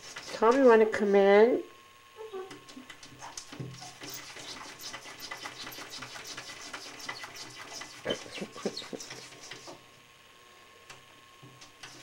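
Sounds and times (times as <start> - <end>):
cat claws scratching glass: 3.8 - 9.8.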